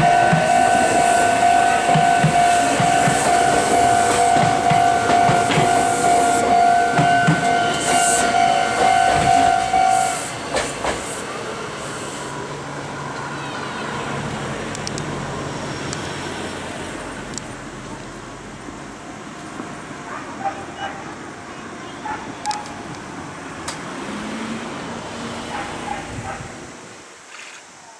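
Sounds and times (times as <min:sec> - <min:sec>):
crossing alarm bell ringing: 0:00.0 - 0:10.4
train wheels clicking over rail joints: 0:00.0 - 0:12.2.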